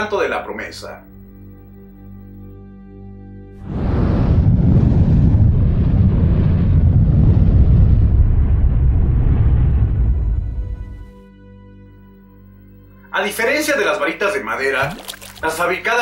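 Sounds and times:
fire rushing rumble: 3.6s - 10.6s.

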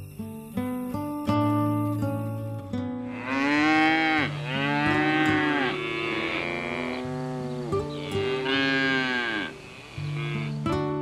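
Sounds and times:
soft background music: 0.0s - 11.0s
cows mooing: 3.0s - 10.7s.

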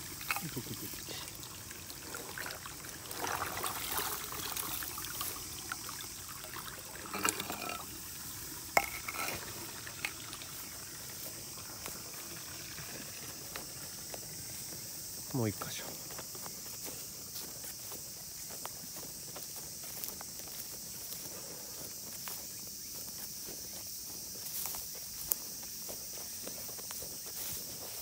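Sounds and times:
faint water trickle: 0.0s - 28.0s
dry grass rustling under hands: 13.4s - 28.0s.

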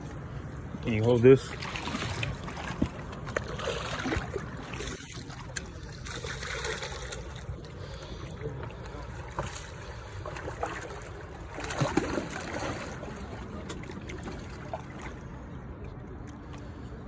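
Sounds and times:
water lapping against rocks: 1.1s - 16.4s.

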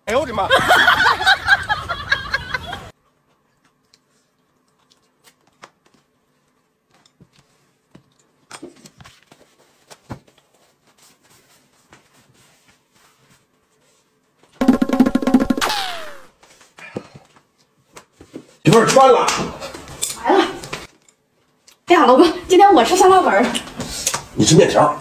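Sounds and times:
woman laughing: 0.5s - 2.9s.

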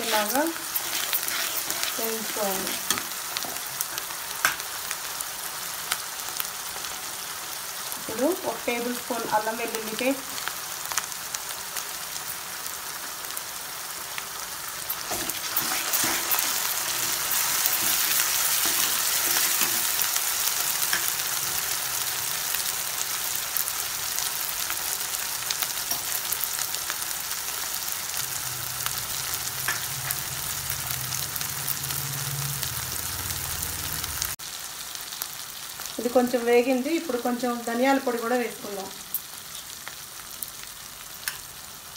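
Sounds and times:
metal spatula scraping a pan: 0.0s - 4.6s, 14.9s - 20.1s
onions sizzling in hot oil: 0.0s - 41.9s.

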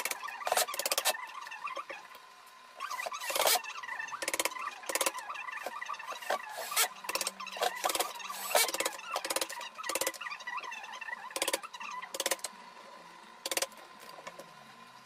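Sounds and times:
cloth and foam squeaks: 2.8s - 9.6s.

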